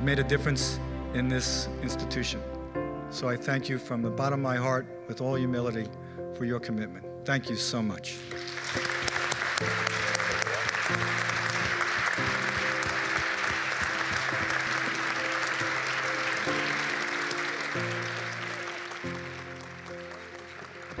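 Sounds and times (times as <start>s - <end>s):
background music with sustained chords: 0.0s - 21.0s
audience applauding: 8.2s - 21.0s.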